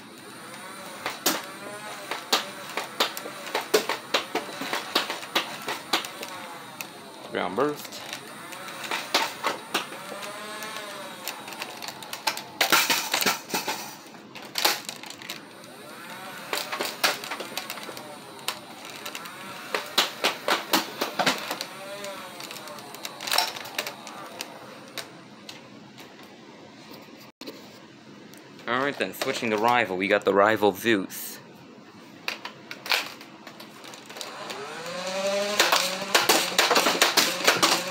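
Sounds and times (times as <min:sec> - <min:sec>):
rapid clicks of darts firing: 0:00.0 - 0:25.6, 0:35.2 - 0:37.9
toy blaster flywheels whirring: 0:00.0 - 0:25.6, 0:32.9 - 0:37.9.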